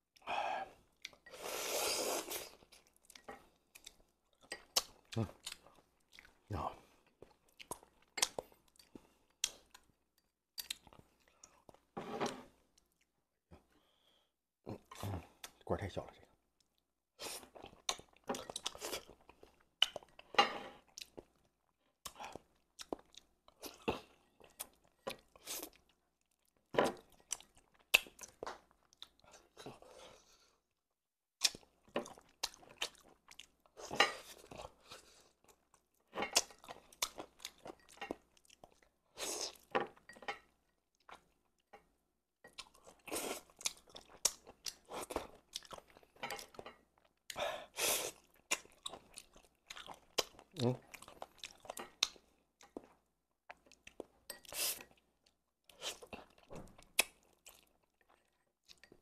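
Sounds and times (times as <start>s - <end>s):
wet chewing and slurping: 47.7s - 55.0s.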